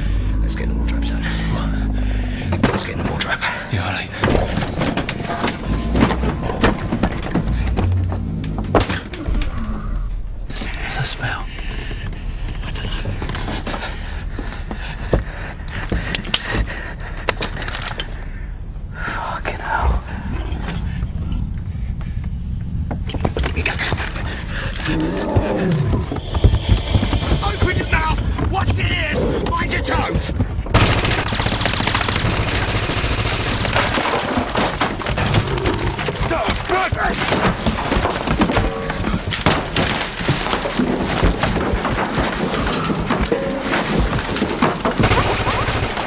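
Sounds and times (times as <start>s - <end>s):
low steady rumble: 0.0s - 31.3s
cracking and crashing impacts: 4.2s - 9.6s, 30.7s - 46.0s.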